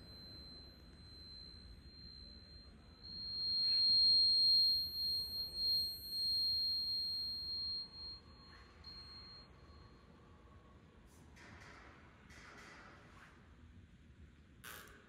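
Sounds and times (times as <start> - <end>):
high steady sine tone: 0.0 - 10.2.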